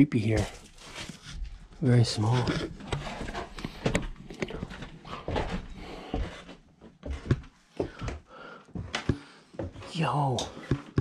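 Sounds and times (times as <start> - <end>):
footsteps on wooden stairs: 2.3 - 11.0.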